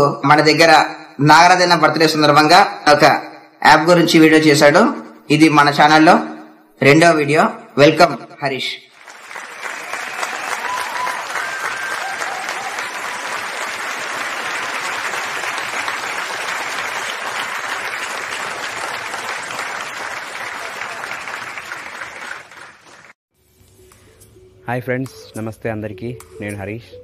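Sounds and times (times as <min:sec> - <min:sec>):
crowd applauding: 0:08.9 - 0:23.2.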